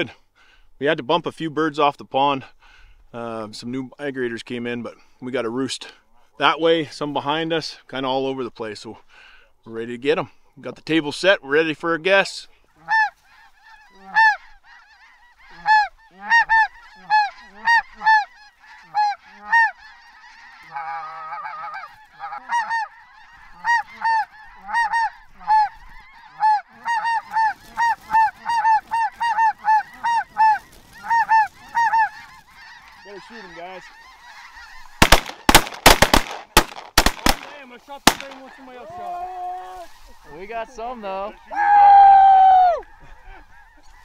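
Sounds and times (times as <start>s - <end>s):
geese honking: 11.0s - 44.0s
shotgun blasts: 35.0s - 38.4s.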